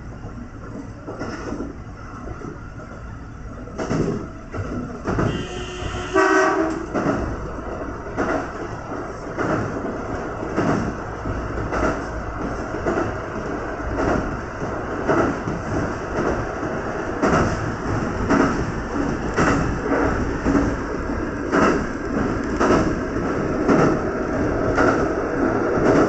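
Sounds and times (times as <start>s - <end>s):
train running noise: 0.0s - 26.0s
electric train horn: 5.2s - 7.0s
wheels thumping over rail joints: 17.2s - 26.0s.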